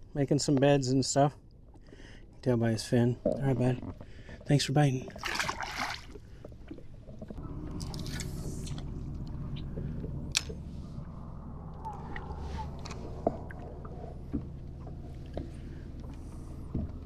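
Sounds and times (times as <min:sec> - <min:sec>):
electric boat motor humming: 0:07.4 - 0:17.0.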